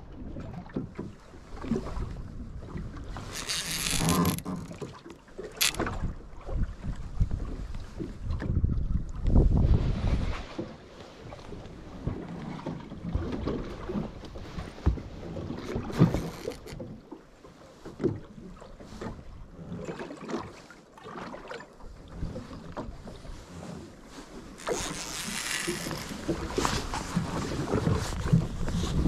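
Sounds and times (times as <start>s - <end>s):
water slapping against boat hull: 0.4s - 9.6s, 10.4s - 17.2s, 24.3s - 29.0s
wind on microphone: 5.6s - 10.6s, 24.4s - 29.0s.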